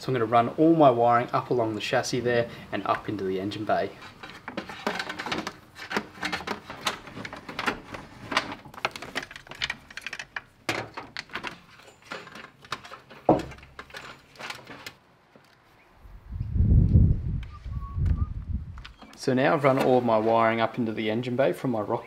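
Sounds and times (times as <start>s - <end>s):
wiring clicking and rustling: 4.0s - 15.7s.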